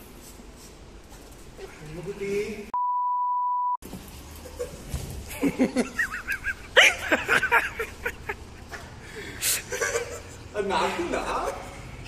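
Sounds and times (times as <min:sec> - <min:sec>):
people laughing: 0:04.5 - 0:08.8, 0:09.4 - 0:10.4.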